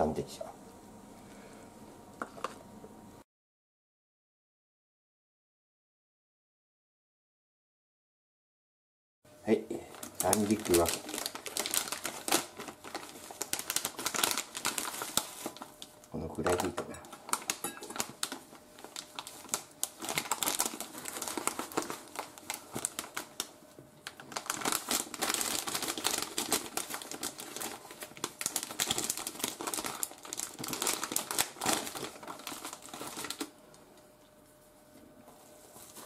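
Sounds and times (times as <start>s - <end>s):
plastic bag crinkling: 9.8s - 33.6s.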